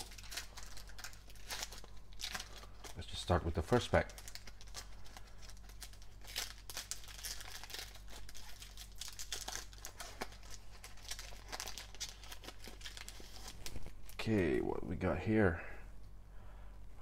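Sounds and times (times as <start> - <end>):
foil wrapper tearing and crinkling: 0.0 - 14.2.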